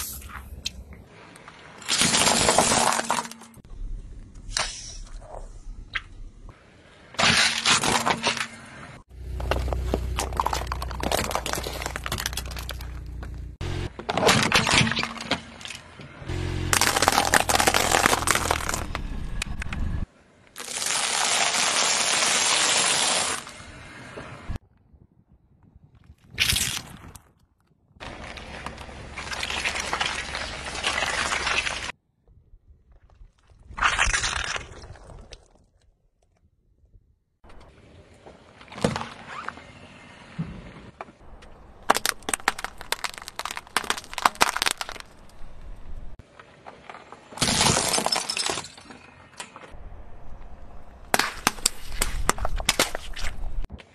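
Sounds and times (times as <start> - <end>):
popcorn crunching under tyre: 9.3 - 13.3, 16.7 - 19.0, 41.8 - 45.9
shells cracking under tyre: 16.7 - 19.7, 41.4 - 45.9, 51.1 - 53.3.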